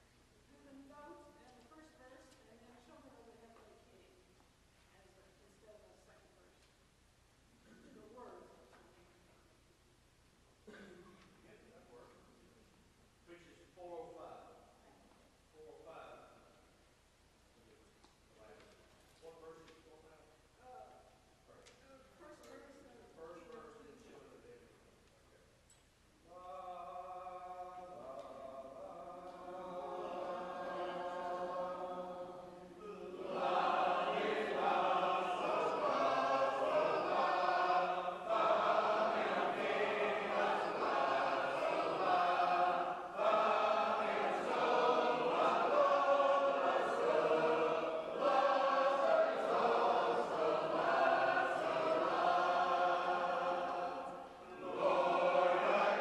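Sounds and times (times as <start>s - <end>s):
group singing in harmony: 26.4s - 56.0s.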